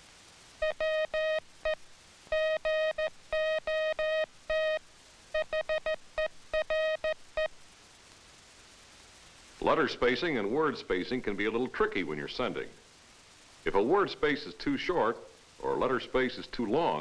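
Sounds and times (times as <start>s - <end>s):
morse code tone: 0.6s - 1.4s, 2.3s - 4.8s, 5.4s - 7.2s.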